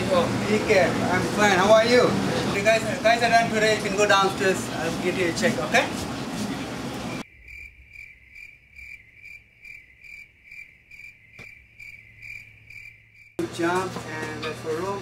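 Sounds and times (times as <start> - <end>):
cricket chirping: 7.2 - 13.4.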